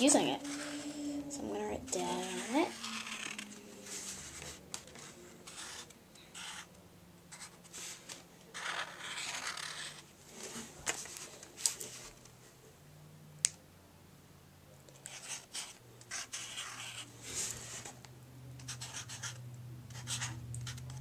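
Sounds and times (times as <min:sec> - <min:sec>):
marker scratching on paper: 0:00.0 - 0:06.7, 0:07.3 - 0:10.0, 0:15.0 - 0:17.8, 0:18.6 - 0:21.0.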